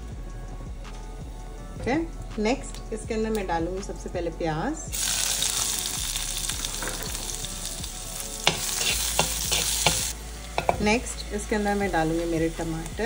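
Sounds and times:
onions sizzling in hot oil: 0:04.9 - 0:13.0.

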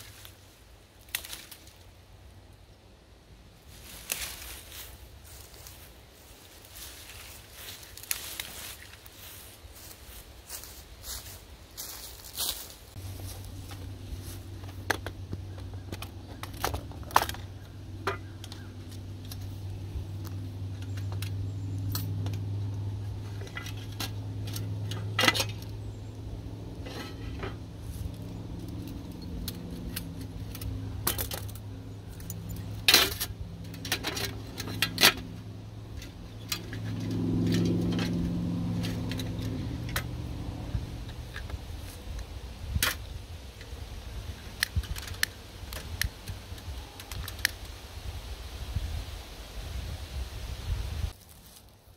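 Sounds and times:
low hum: 0:13.0 - 0:47.7.

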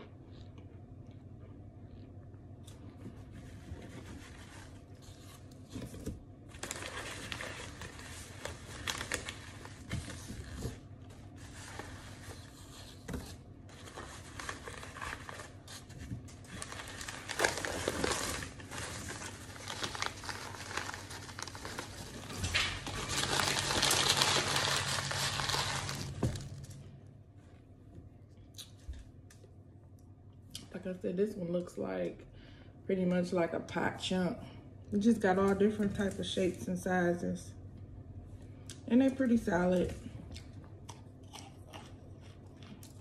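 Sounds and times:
paper bag crinkling and rustling: 0:03.4 - 0:26.8.

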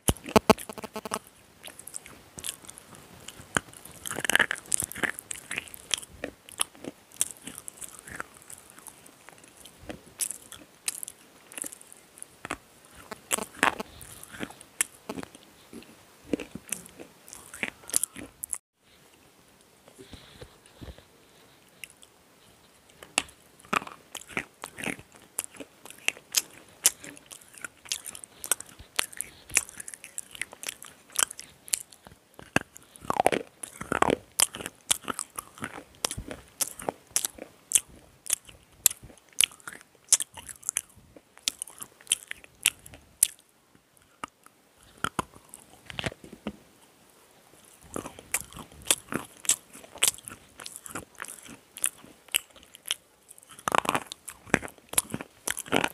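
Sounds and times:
slate pencils crunching: 0:23.0 - 0:43.4, 0:47.8 - 0:55.9.

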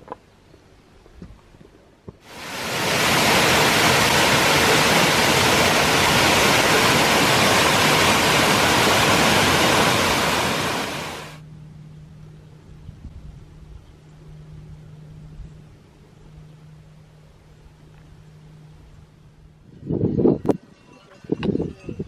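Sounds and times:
waterfall rushing over rocks: 0:02.3 - 0:11.4.

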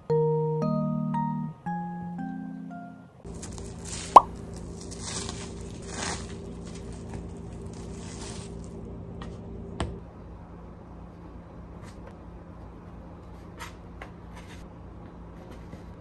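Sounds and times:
steady low hum: 0:03.2 - 0:11.8
plastic film crinkling: 0:03.3 - 0:08.9.

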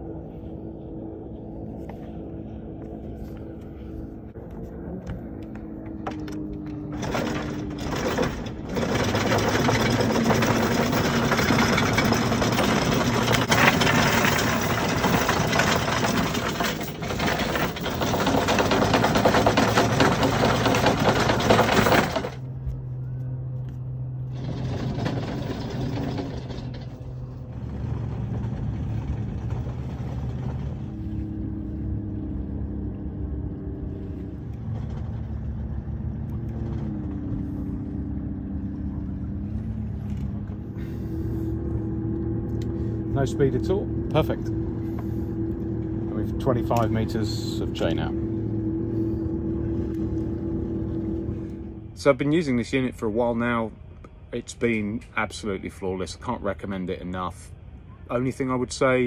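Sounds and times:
steady low hum: 0:00.0 - 0:59.0
windlass motor hum: 0:00.0 - 0:59.0
anchor chain rattling: 0:06.4 - 0:22.5, 0:24.2 - 0:30.8.

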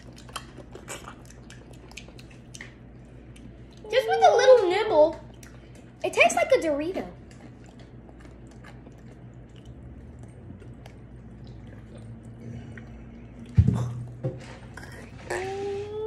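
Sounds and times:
chip crunching and chewing: 0:00.0 - 0:03.9, 0:07.2 - 0:13.6
low hum: 0:06.7 - 0:16.0.

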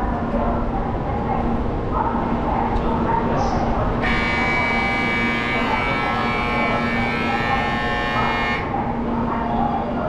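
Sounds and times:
steady low station hum: 0:03.8 - 0:09.3
shrill platform buzzer: 0:04.0 - 0:08.7.

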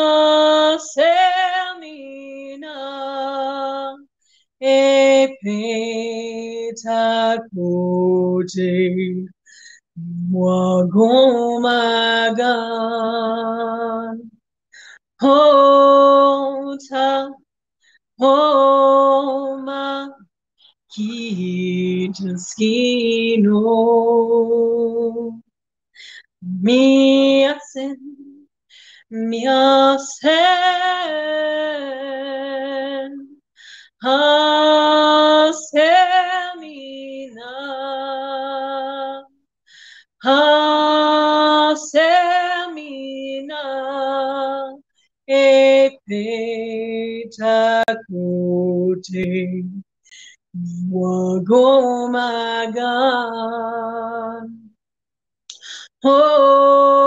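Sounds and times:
woman singing unaccompanied: 0:00.0 - 0:14.4, 0:15.2 - 0:17.5, 0:18.2 - 0:20.2, 0:20.9 - 0:25.5, 0:26.4 - 0:28.5, 0:29.1 - 0:33.4, 0:34.0 - 0:39.4, 0:40.2 - 0:49.9, 0:50.6 - 0:54.7, 0:55.5 - 0:57.0
singer breathing: 0:09.4 - 0:09.9, 0:14.7 - 0:15.1, 0:26.0 - 0:26.3, 0:28.7 - 0:29.1, 0:33.5 - 0:34.0, 0:39.6 - 0:40.2, 0:50.0 - 0:50.4.

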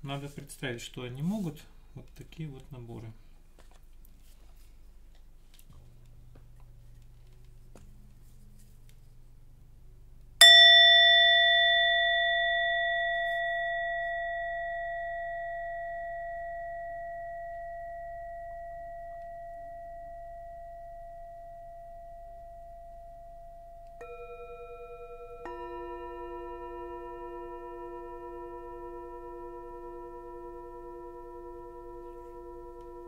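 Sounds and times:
larger singing bowls struck: 0:10.4 - 0:33.0
small singing bowl ringing: 0:10.4 - 0:33.0.

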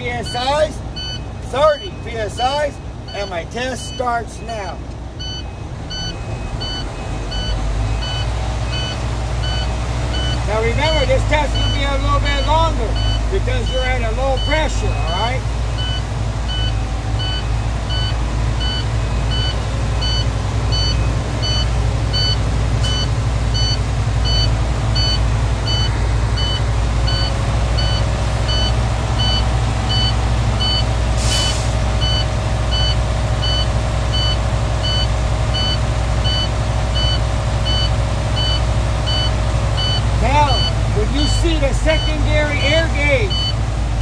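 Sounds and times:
diesel truck engine revving: 0:00.0 - 0:44.0
warning beeping: 0:00.0 - 0:44.0
short air hiss: 0:31.2 - 0:31.8.

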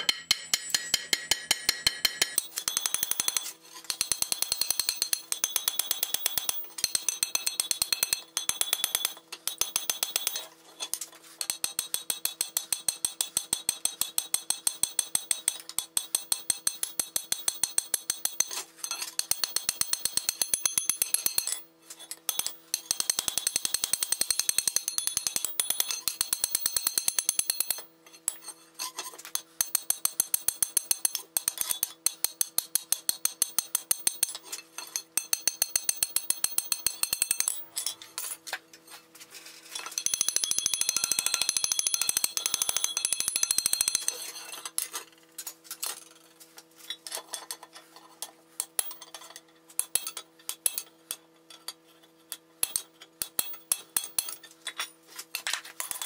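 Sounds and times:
hammer striking iron on anvil: 0:00.0 - 0:10.4, 0:11.4 - 0:38.4, 0:39.8 - 0:44.8, 0:48.6 - 0:51.2, 0:52.6 - 0:54.9.

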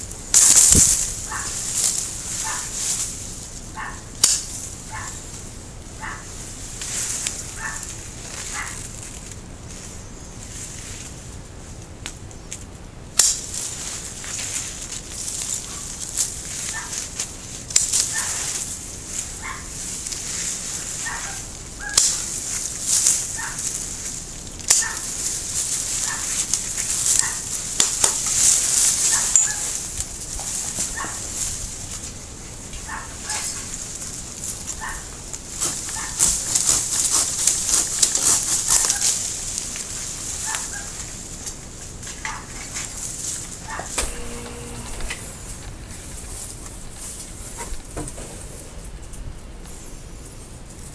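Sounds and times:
rustle of leaves and branches: 0:00.0 - 0:50.9
pruning shears snipping: 0:00.3 - 0:03.1, 0:03.8 - 0:05.2, 0:12.0 - 0:32.2, 0:32.8 - 0:48.2.

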